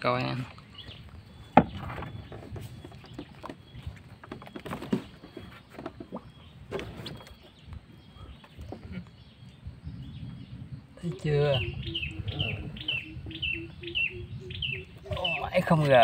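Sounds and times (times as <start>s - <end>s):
knocks on fiberglass boat: 1.5s - 2.5s.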